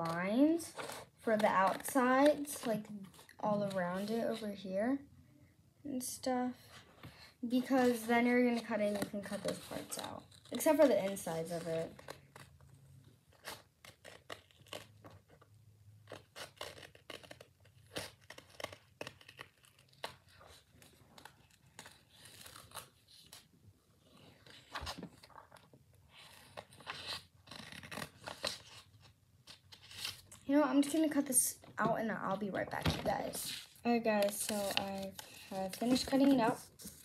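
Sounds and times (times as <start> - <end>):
scissors cutting paper: 0.0 - 4.5, 7.6 - 12.6, 13.3 - 15.4, 16.0 - 23.4, 26.2 - 28.8, 33.2 - 37.0.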